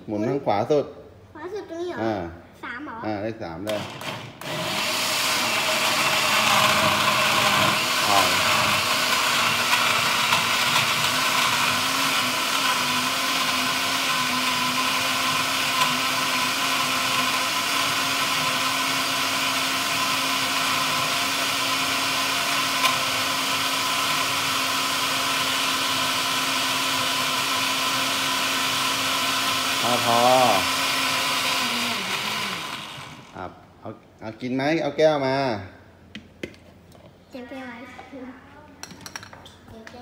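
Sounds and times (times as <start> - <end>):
blender running: 3.6 - 33.5.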